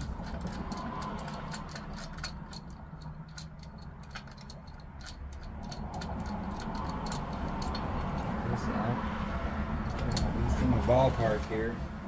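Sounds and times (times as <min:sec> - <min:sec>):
small metallic clicks and taps: 0:00.0 - 0:08.3.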